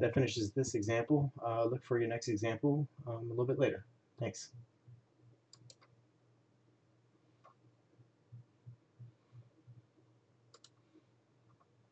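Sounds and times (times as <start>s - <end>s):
faint low hum: 0.0s - 11.9s
computer mouse clicks: 5.5s - 6.0s, 10.5s - 10.8s.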